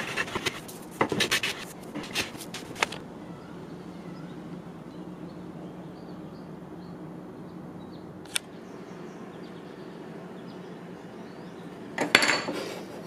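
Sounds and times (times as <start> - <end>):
steady low hum: 0.0 - 13.0
sharp click: 8.2 - 8.5.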